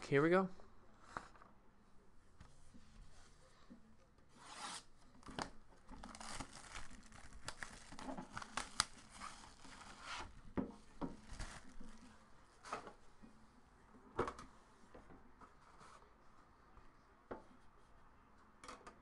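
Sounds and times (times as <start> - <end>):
plastic wrap tearing and crinkling: 6.0 - 10.1.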